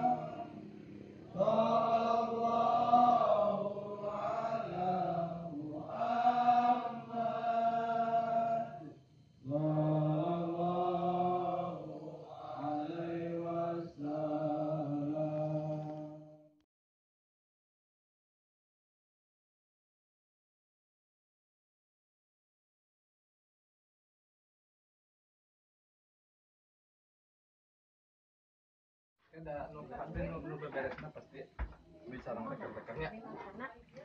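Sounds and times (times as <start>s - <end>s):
group of voices chanting: 0.0s - 16.0s.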